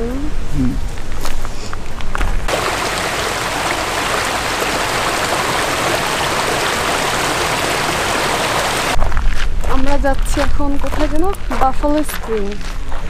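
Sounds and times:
stream rushing over rocks: 2.5 - 9.0.

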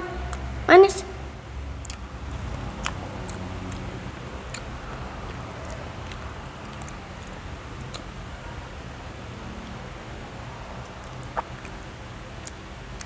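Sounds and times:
steady low hum: 0.0 - 13.0
child eating wet mouth clicks: 1.8 - 8.1, 10.8 - 13.0.

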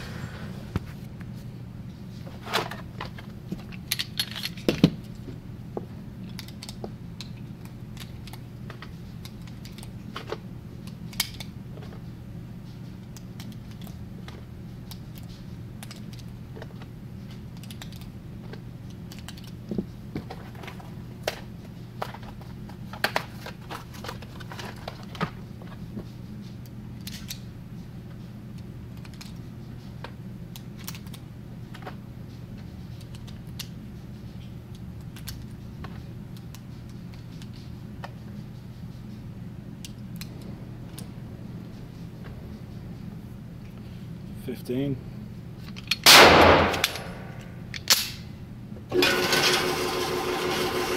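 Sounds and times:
low hum: 0.0 - 50.9
cartridges clicking into magazine: 45.7 - 48.2.

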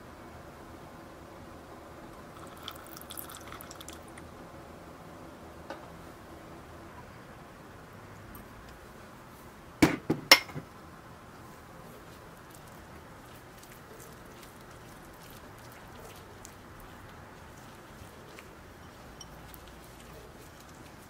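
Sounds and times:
faint whisking: 11.3 - 21.0
spoon clinking against glass bowl: 18.8 - 19.7.

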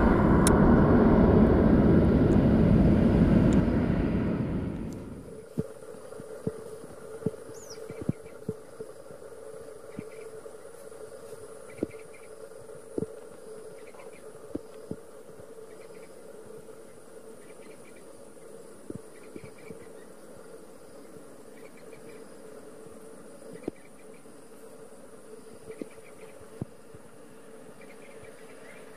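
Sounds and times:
high-pitched whine: 0.0 - 6.5
faint steady hum: 0.0 - 28.9
insects chirping: 0.0 - 28.9.

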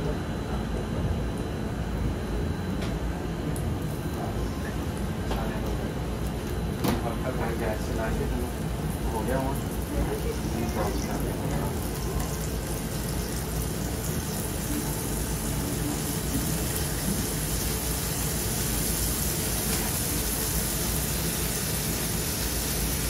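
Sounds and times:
food frying in a wok: 7.5 - 23.0.

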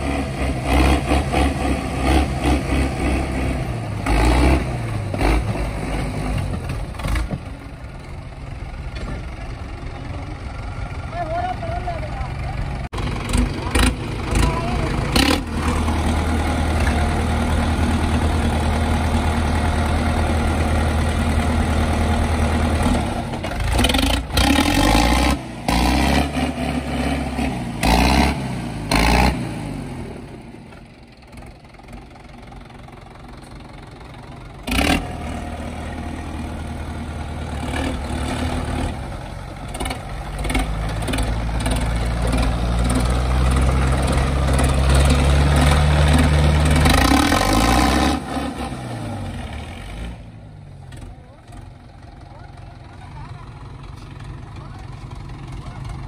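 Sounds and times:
tractor diesel engine revving: 0.0 - 56.0.

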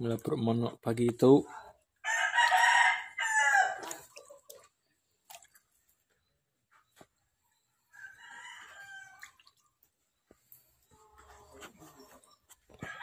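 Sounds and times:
distant rooster crowing: 2.0 - 3.8, 7.9 - 9.4.

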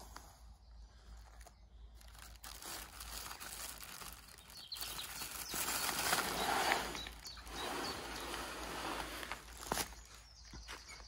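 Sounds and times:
plastic bag crinkling: 1.9 - 10.2.

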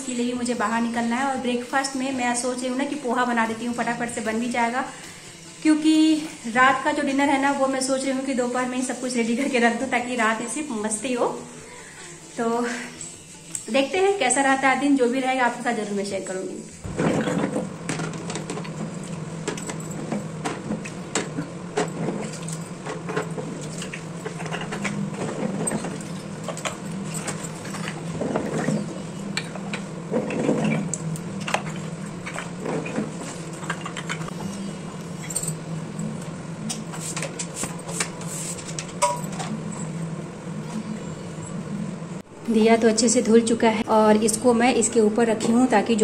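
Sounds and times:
steady low hum: 0.0 - 46.0
clay lamps clinking: 16.9 - 39.9.

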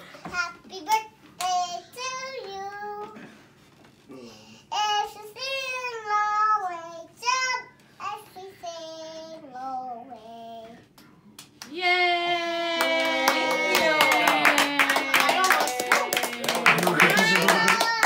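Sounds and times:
child singing in high voice: 4.7 - 10.8
hand clapping: 11.4 - 11.8, 12.8 - 18.0.

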